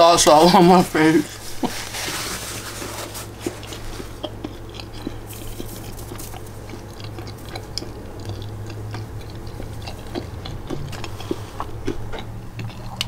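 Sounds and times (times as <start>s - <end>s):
steady low hum: 0.0s - 13.0s
person chewing with wet mouth clicks: 3.4s - 13.0s.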